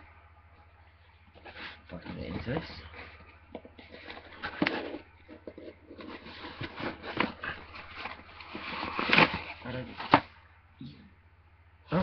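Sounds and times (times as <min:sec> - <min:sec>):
cardboard package tearing: 0:06.0 - 0:10.2
cardboard snapping: 0:06.7 - 0:10.3.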